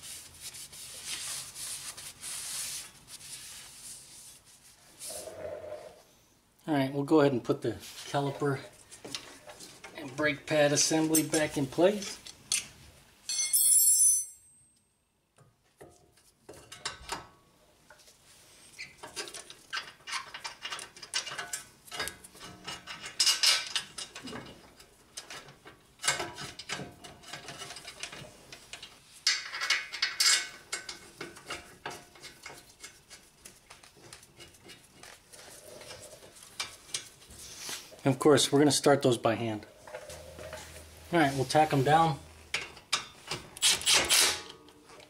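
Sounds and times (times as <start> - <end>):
bright metallic ring: 13.3 - 15.0
metal clicks and scrapes: 19.0 - 37.3.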